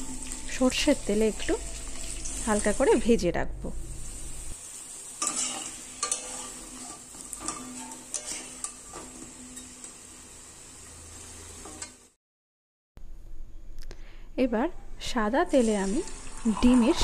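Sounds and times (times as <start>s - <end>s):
potatoes sizzling in oil: 0.0s - 3.2s, 3.9s - 12.2s, 15.5s - 17.0s
metal spatula scraping pan: 5.2s - 10.0s.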